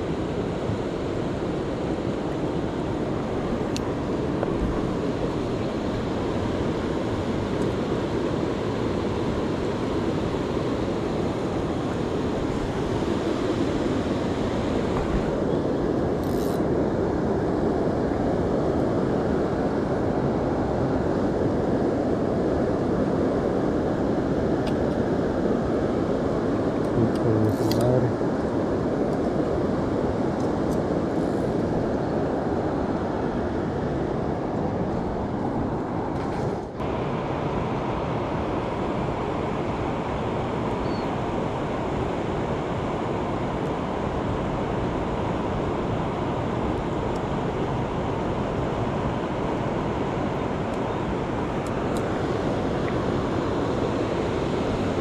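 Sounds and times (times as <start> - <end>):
wind on microphone: 0.0 - 55.0.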